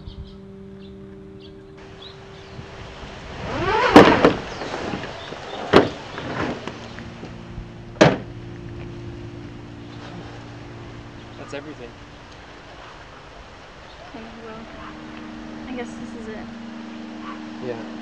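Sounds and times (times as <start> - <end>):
bag scraping: 3.2 - 7.0
luggage thumping into truck bed: 3.6 - 8.4
knocks against truck bed: 3.7 - 6.8, 8.0 - 8.4.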